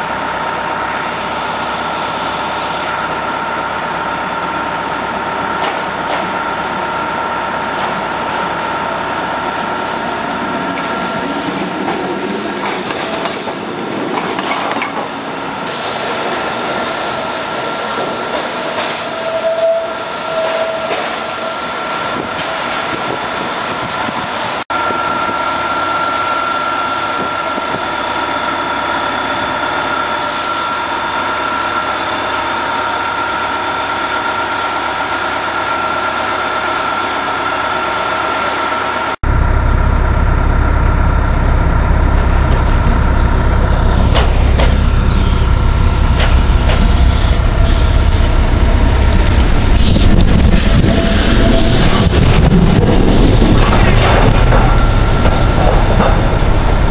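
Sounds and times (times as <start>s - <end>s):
trolley whine: 0.0s - 56.9s
wheels rumbling on rail: 0.0s - 56.9s
heavy low rumble: 39.2s - 56.9s.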